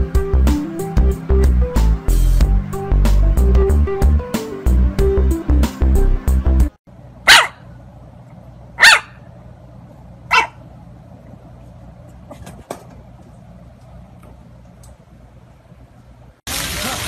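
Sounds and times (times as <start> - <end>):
puppy barking: 7.2 - 7.7, 8.8 - 9.3, 10.3 - 10.6.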